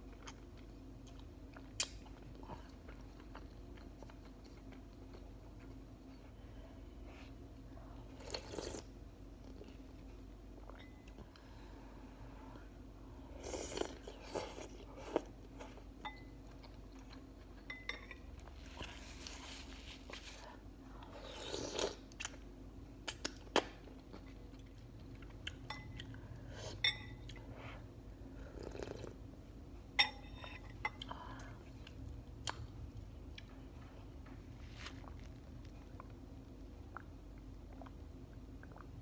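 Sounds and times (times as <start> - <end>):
person chewing: 0.1 - 6.2, 8.2 - 9.9, 38.6 - 38.9.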